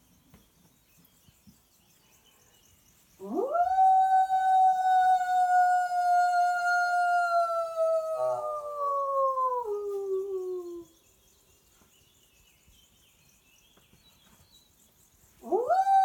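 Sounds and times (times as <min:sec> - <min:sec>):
woman imitating wolf howl: 0:03.2 - 0:10.9, 0:15.4 - 0:16.0.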